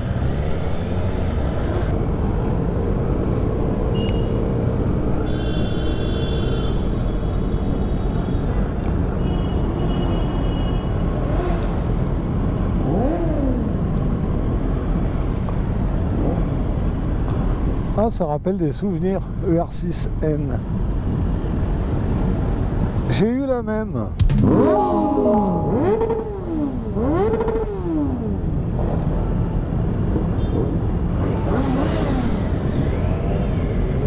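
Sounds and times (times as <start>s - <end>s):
motorcycle engines rumbling: 11.0s - 17.7s, 25.8s - 34.0s
motorcycle engines revving: 11.2s - 14.0s, 25.8s - 29.2s, 31.1s - 34.0s.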